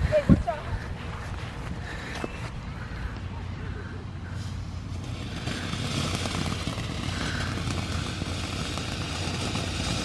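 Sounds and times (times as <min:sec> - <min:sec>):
firework fountain hissing: 0:03.3 - 0:10.0.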